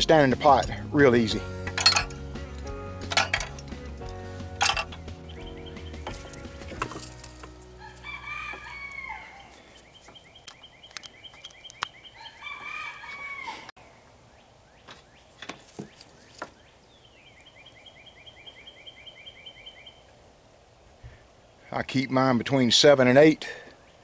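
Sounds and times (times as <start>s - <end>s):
songbird trilling: 4.9s - 6.2s, 8.7s - 12.5s, 14.3s - 20.1s
rooster crowing: 7.8s - 9.6s, 12.2s - 13.7s
sharp clicks: 10.4s - 12.0s.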